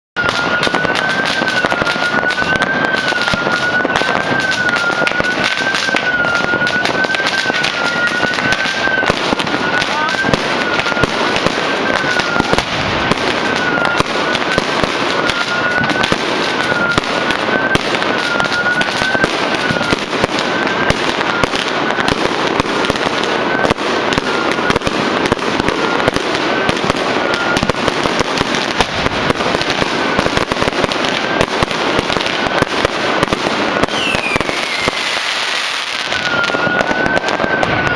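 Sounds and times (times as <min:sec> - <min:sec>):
warbling high tone: 0:00.2 - 0:22.1, 0:33.9 - 0:37.9
fireworks crackling and banging: 0:00.2 - 0:37.9.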